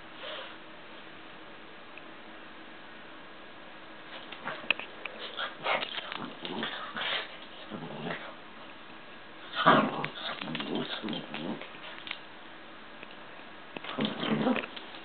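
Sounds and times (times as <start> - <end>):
small dog vocal noises: 9.5 - 12.2, 13.8 - 15.0.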